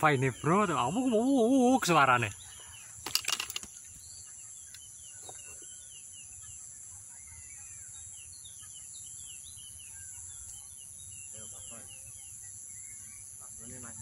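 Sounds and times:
small birds chirping: 0.0s - 14.0s
steady high-pitched hiss: 0.0s - 14.0s.

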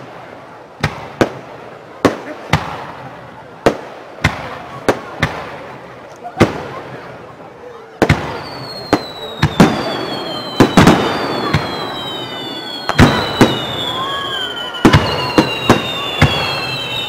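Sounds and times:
whistling fireworks falling in pitch: 7.8s - 17.0s.

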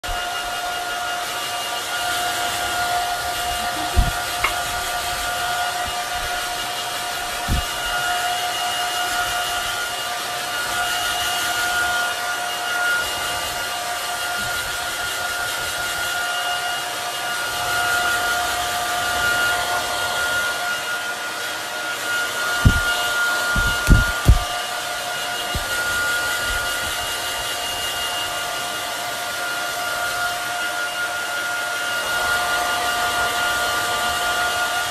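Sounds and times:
hair dryer running: 0.0s - 34.9s
low thumps: 22.6s - 22.9s, 23.6s - 24.5s.

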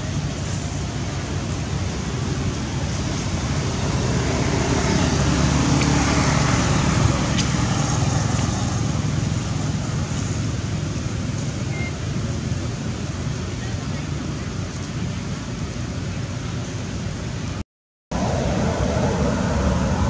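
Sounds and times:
vehicle passing: 0.0s - 11.3s, 18.1s - 20.0s.

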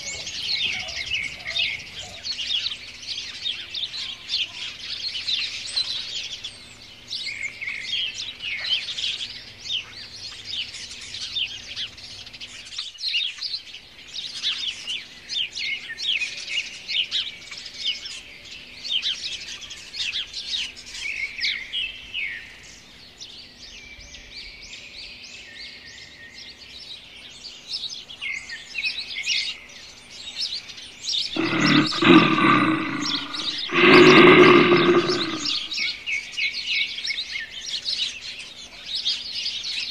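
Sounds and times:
small birds chirping: 27.4s - 39.9s
lionesses growling: 31.3s - 35.9s.

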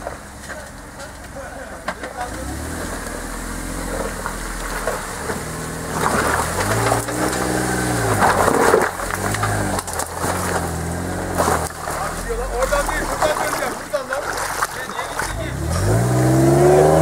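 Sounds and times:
car engine revving: 1.8s - 17.0s
water splashing: 2.6s - 17.0s
tyres crunching on rock: 3.8s - 16.0s.

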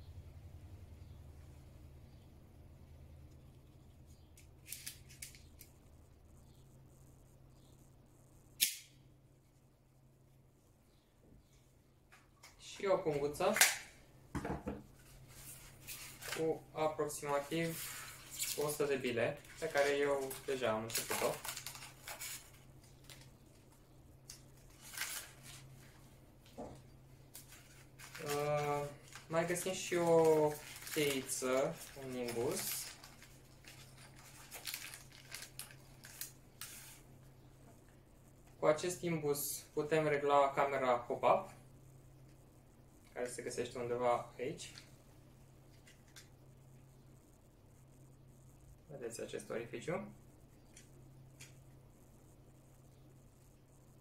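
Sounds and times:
plastic bag rustling: 14.9s - 23.8s, 24.5s - 26.6s, 27.4s - 37.1s.

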